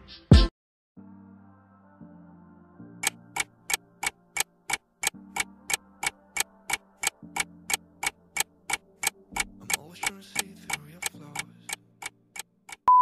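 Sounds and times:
soft background music: 0:01.0 - 0:12.8
clock-like timer ticks: 0:03.0 - 0:12.9.

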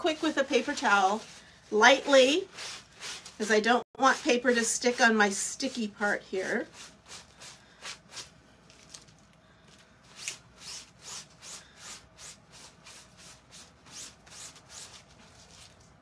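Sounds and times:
paper towel rubbing plastic: 0:00.0 - 0:08.3.

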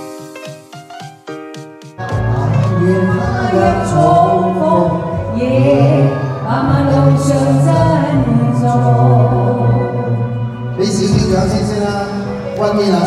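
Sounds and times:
backing music: 0:00.0 - 0:13.0
man and woman singing duet: 0:02.0 - 0:11.1.

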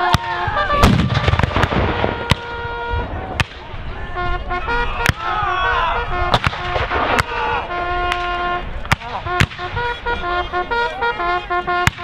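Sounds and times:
muskets firing: 0:00.1 - 0:02.6, 0:03.4 - 0:03.7, 0:06.3 - 0:07.4
voices: 0:02.0 - 0:12.0.

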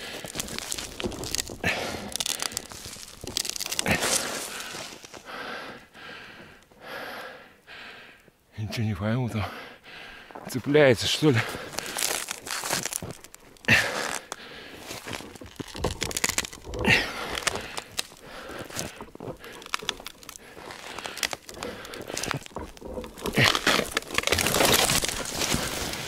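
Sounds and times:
snow pouring down: 0:00.0 - 0:05.2, 0:11.1 - 0:26.0
tree falling crash: 0:00.0 - 0:05.2, 0:11.5 - 0:26.0
branches snapping: 0:00.0 - 0:05.3, 0:11.4 - 0:26.0
tree trunk cracking: 0:00.0 - 0:06.7, 0:10.5 - 0:26.0.

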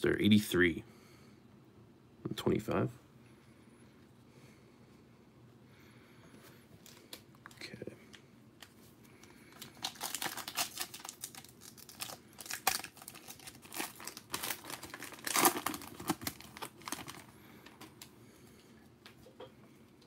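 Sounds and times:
foil wrapper crackling: 0:08.6 - 0:18.0.

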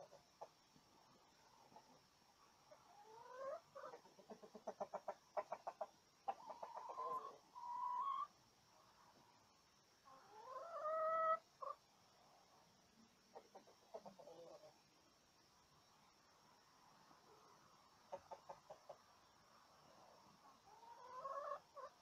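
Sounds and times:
chickens clucking: 0:00.0 - 0:09.3, 0:09.9 - 0:14.9, 0:17.0 - 0:22.0
chicken drawn-out calls: 0:02.7 - 0:08.4, 0:10.0 - 0:11.8, 0:20.6 - 0:22.0.

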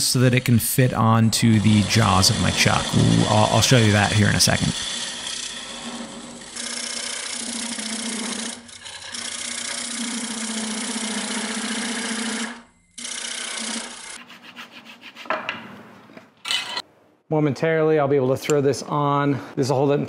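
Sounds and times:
lathe tool scraping wood: 0:00.0 - 0:15.3.

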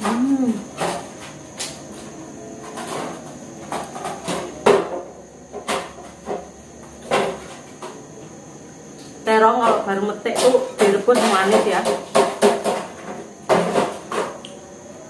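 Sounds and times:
dishes knocking and clinking: 0:02.7 - 0:07.4, 0:10.4 - 0:14.4.

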